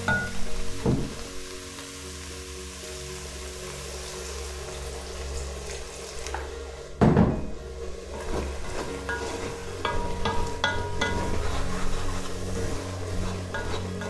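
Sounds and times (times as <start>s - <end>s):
soft background music: 0.0s - 14.0s
wooden spoon stirring pot: 7.9s - 14.0s.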